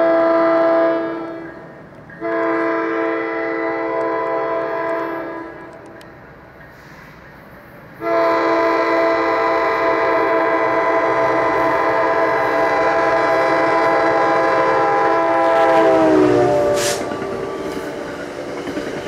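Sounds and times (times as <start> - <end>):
locomotive air horn blast: 0.0 - 1.5, 2.2 - 5.8, 8.0 - 17.8
passing train rush: 0.0 - 19.0.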